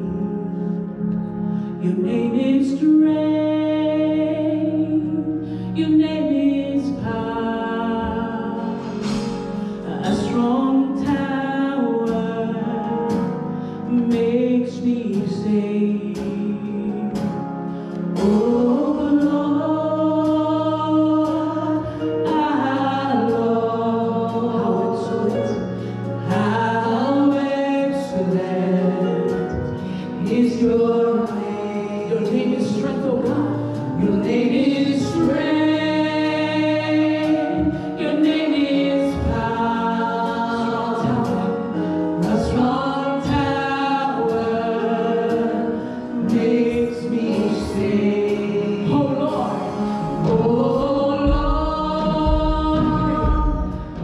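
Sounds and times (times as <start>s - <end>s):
instrumental backing: 0.0s - 54.0s
choir singing: 18.2s - 25.6s, 26.2s - 54.0s
low bass notes: 45.3s - 54.0s
percussive beat: 48.9s - 54.0s.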